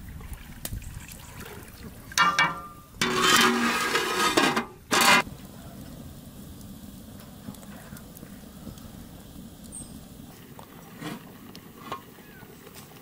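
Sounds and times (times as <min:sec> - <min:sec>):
metal pot lid clattering: 0:02.2 - 0:05.2
wood fire crackling: 0:02.2 - 0:13.0.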